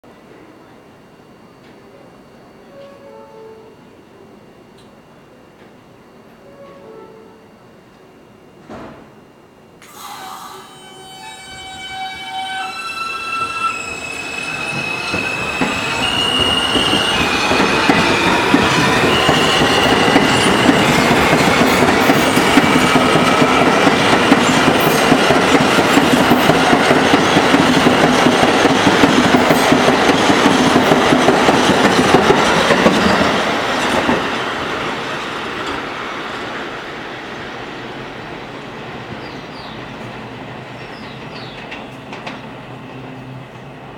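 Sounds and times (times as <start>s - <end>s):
subway train electric whine: 0.1s - 43.9s.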